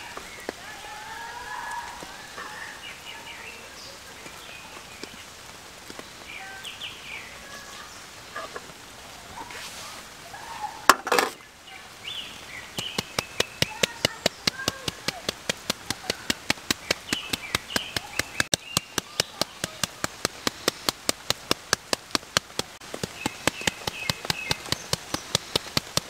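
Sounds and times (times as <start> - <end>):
small birds chirping: 0.0 - 26.0
salt shaker tapping: 12.9 - 26.0.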